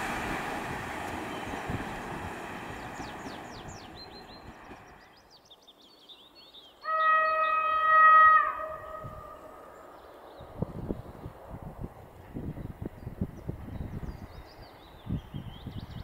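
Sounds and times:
passenger train rolling: 0:00.0 - 0:05.2
bird chirping: 0:02.6 - 0:07.8
train horn long note: 0:06.9 - 0:09.5.

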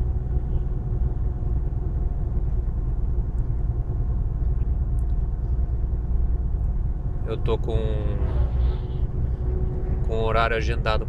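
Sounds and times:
road rumble: 0:00.0 - 0:11.0
truck engine drone: 0:00.0 - 0:11.0.

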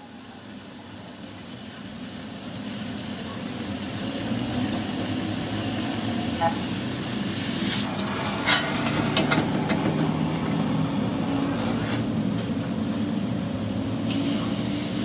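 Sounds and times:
cutting torch hissing: 0:00.0 - 0:08.0, 0:14.0 - 0:15.0.

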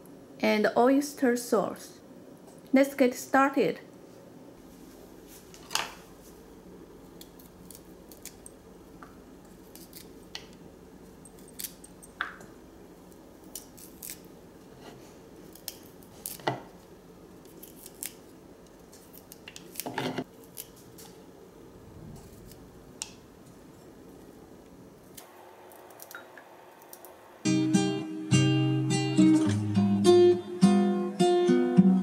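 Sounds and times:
knife snipping and scraping stems: 0:07.1 - 0:08.6, 0:09.4 - 0:10.6, 0:11.3 - 0:12.0, 0:13.4 - 0:16.7, 0:17.4 - 0:21.2, 0:25.1 - 0:27.2.

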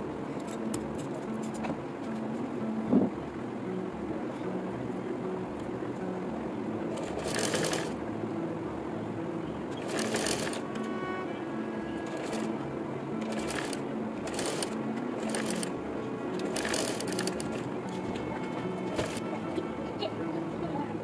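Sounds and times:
background music with steady beat: 0:00.0 - 0:21.0
sewing machine stitching: 0:06.9 - 0:08.0, 0:09.8 - 0:10.6, 0:12.0 - 0:12.5, 0:13.2 - 0:15.7, 0:16.4 - 0:17.7, 0:18.8 - 0:19.2.

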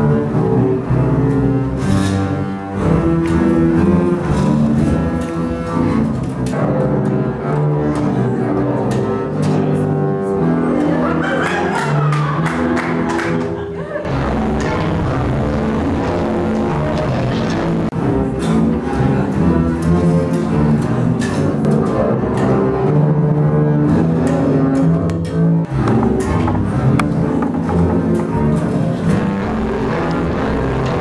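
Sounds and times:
music: 0:00.0 - 0:31.0
double basses bowing low notes: 0:14.1 - 0:31.0.

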